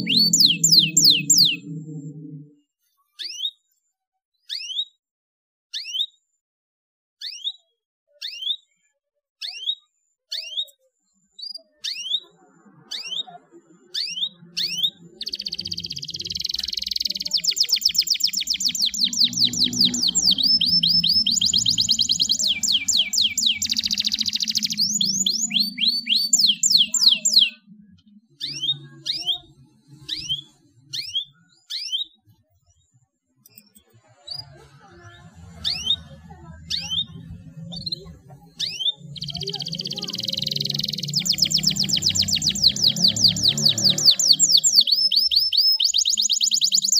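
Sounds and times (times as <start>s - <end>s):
faint low hum: 0.0s - 2.6s
canary chirping and trilling: 0.0s - 3.7s, 4.4s - 5.0s, 5.7s - 6.2s, 7.2s - 8.8s, 9.4s - 46.9s.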